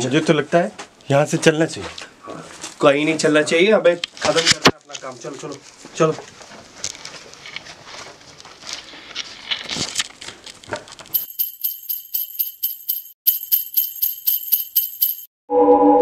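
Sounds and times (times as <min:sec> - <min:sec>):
small bells jingling: 0:11.2 - 0:15.3.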